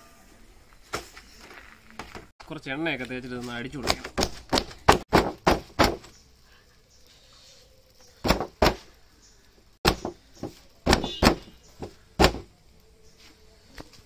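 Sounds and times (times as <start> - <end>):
hands slapping flatbreads: 3.4 - 6.1, 9.8 - 12.5.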